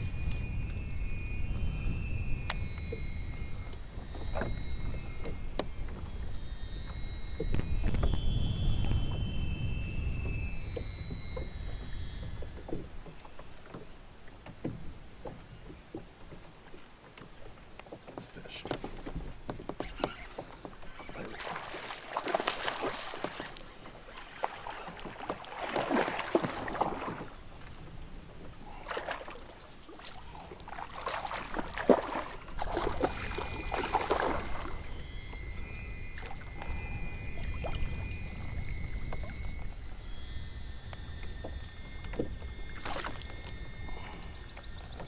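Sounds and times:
fish splashing in water: 0:21.0 - 0:27.4, 0:28.7 - 0:35.0.

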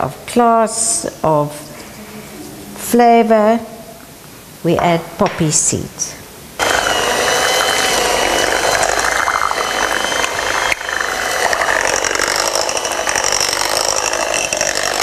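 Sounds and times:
electric beater motor whine: 0:06.6 - 0:15.0.

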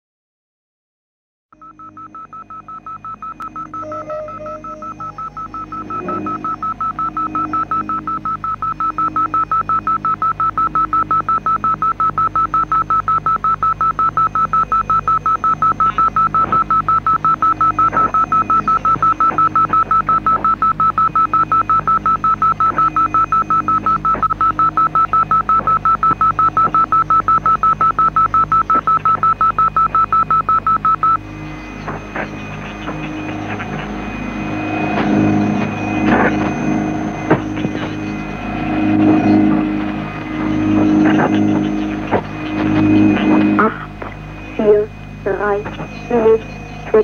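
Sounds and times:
rapid high electronic beeping: 0:01.6 - 0:47.0
low sustained drone: 0:03.3 - 0:10.0, 0:31.1 - 0:47.0.

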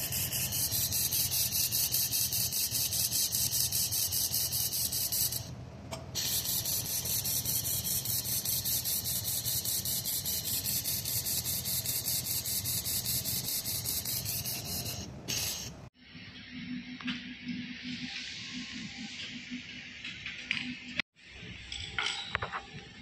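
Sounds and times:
laser welder hissing and pulsing: 0:00.0 - 0:05.5, 0:06.1 - 0:15.9.

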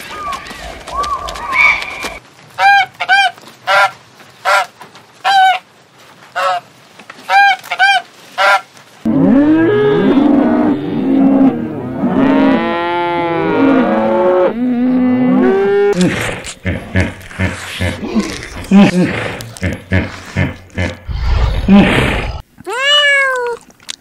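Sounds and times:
cows mooing: 0:09.1 - 0:21.0.

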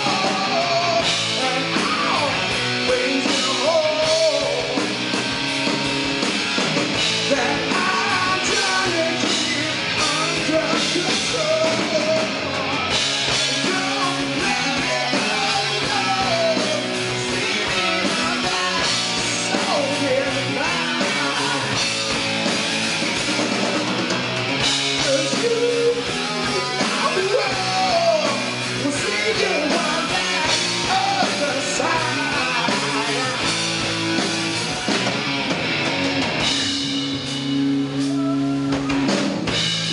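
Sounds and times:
person singing: 0:00.0 - 0:04.9, 0:07.2 - 0:12.7, 0:13.4 - 0:21.8, 0:25.0 - 0:33.5
bass guitar: 0:00.0 - 0:39.9
drum kit: 0:00.0 - 0:39.9
electric guitars: 0:00.0 - 0:39.9.

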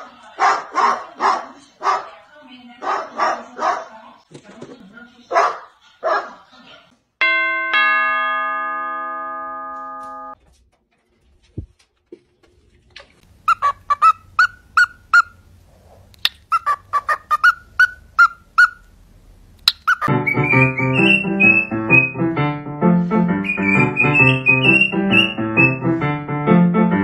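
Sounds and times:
piano music: 0:07.2 - 0:10.4, 0:20.1 - 0:27.0
two-tone doorbell chime: 0:07.2 - 0:10.4
cockatiel chirping: 0:13.5 - 0:15.4, 0:16.3 - 0:18.9, 0:19.7 - 0:22.2, 0:23.4 - 0:25.8.

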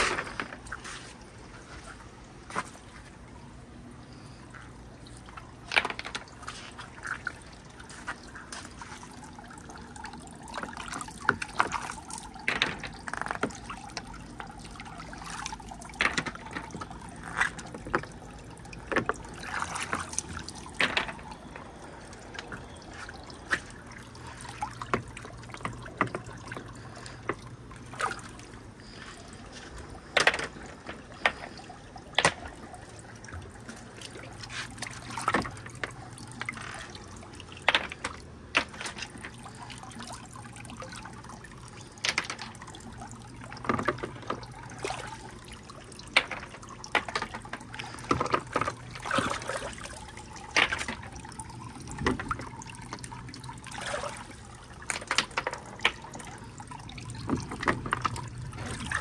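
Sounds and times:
water trickling: 0:00.0 - 0:59.0
marbles knocking and clacking: 0:12.4 - 0:14.0, 0:16.0 - 0:18.2, 0:20.7 - 0:21.7, 0:30.1 - 0:31.6, 0:37.6 - 0:39.3, 0:42.0 - 0:42.6, 0:46.1 - 0:48.8, 0:54.8 - 0:56.2.

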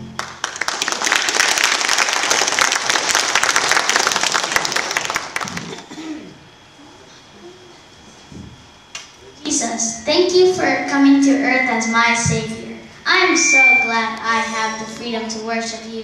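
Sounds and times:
audience clapping: 0:00.0 - 0:05.9.

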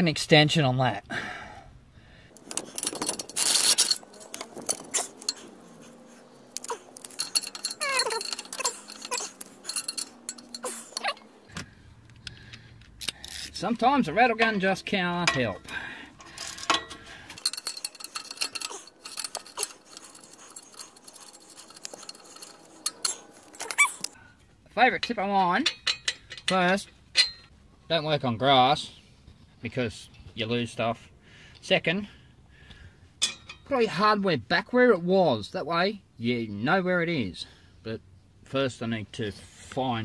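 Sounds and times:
metal hand tools clinking: 0:02.3 - 0:11.4, 0:13.0 - 0:24.2, 0:24.8 - 0:27.5.

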